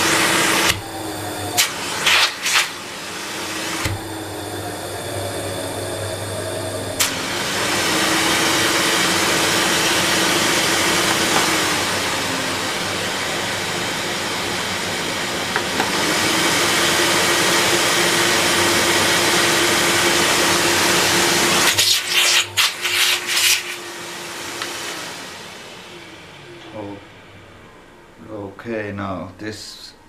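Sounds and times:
vacuum cleaner whining: 0.0 - 30.0.

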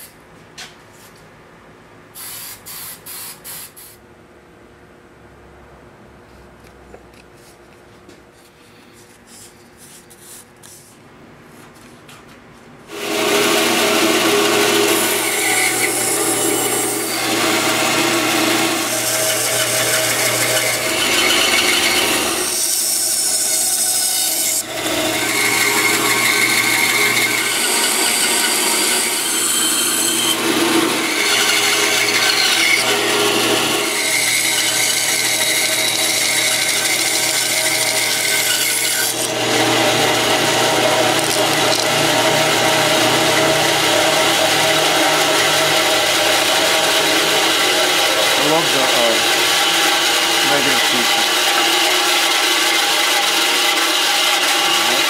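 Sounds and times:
faint handling sounds: 6.2 - 12.7
bandsaw cutting wood: 12.9 - 55.0.

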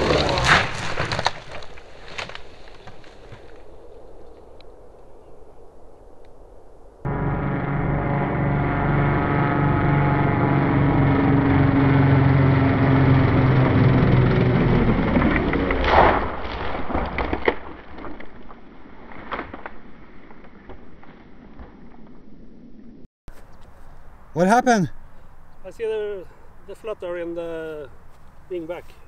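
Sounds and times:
model plane crash impact: 0.0 - 2.4, 14.0 - 18.2
scattered cracks and knocks: 0.0 - 3.5, 15.2 - 22.0
model airplane engines running: 7.1 - 15.8.

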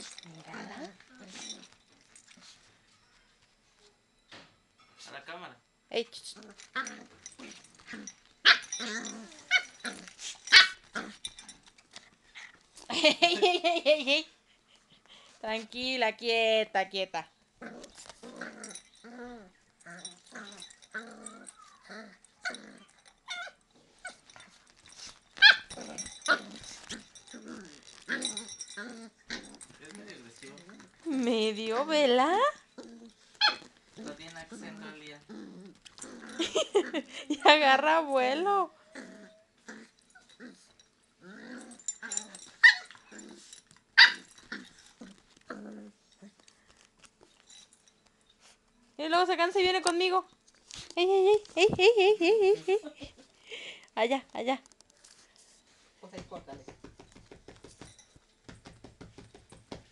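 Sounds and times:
dogs growling and yipping: 0.0 - 2.6, 6.3 - 13.6, 17.6 - 37.6, 38.7 - 46.6
dog yelping: 25.4 - 25.7, 33.4 - 33.7, 42.6 - 43.0, 44.0 - 44.3.

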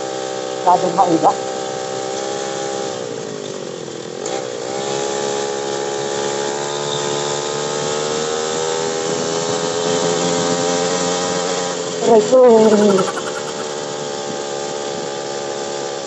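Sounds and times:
motorcycle engine accelerating: 12.4 - 14.1.

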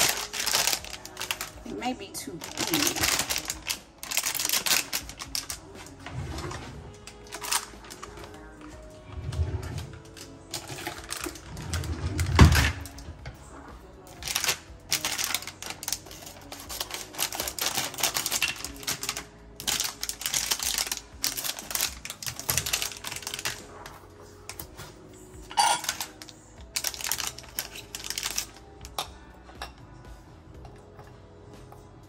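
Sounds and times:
wooden spoon clattering in container: 25.5 - 28.5.

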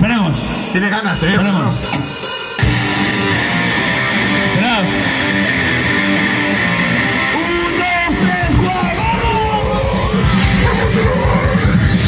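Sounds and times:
distorted electric guitar riffing: 0.0 - 12.0
voices shouting: 2.8 - 12.0.

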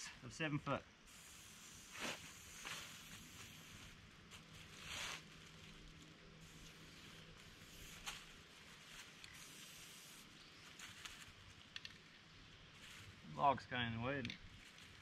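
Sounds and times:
soft hisses or clicks: 1.1 - 12.1.

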